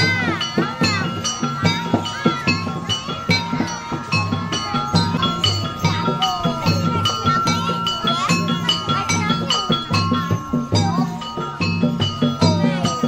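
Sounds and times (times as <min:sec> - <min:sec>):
ringing metal strikes: 0:00.0 - 0:13.0.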